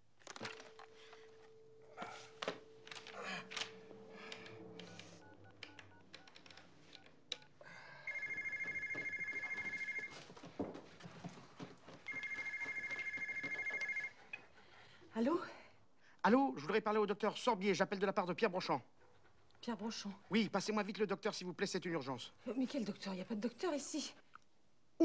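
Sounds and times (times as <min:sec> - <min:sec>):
telephone dial tone: 0:00.2 - 0:10.1, 0:12.1 - 0:14.1
handset and key clicks: 0:02.3 - 0:07.6
electronic phone ringer trilling: 0:08.1 - 0:10.1, 0:12.1 - 0:14.1.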